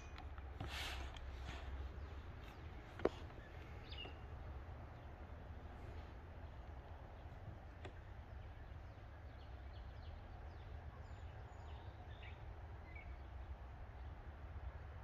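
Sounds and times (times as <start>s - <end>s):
low steady rumble: 0.0s - 15.0s
faint bird chirps: 8.3s - 13.5s.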